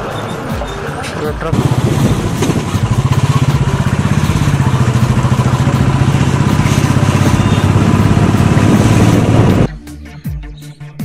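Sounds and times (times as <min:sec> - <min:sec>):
motorcycle engine running: 0:01.5 - 0:09.7.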